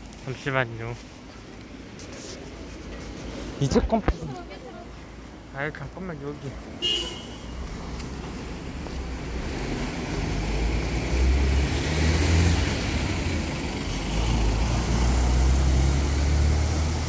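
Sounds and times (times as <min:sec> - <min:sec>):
bus engine driving past: 0:07.5 - 0:17.0.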